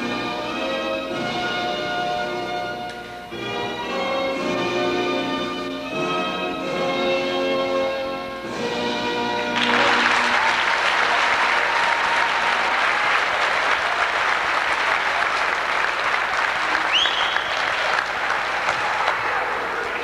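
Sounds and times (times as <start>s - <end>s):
crowd applause and cheering: 9.6s - 20.0s.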